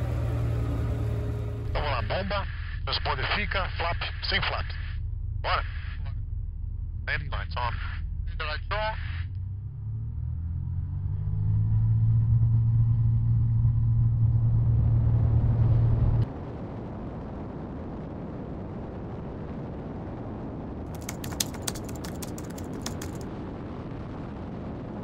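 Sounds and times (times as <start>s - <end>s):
light aircraft engine droning: 0.0s - 2.8s, 20.9s - 23.2s
wind rush: 15.4s - 25.0s
sharp clicks: 20.9s - 23.2s.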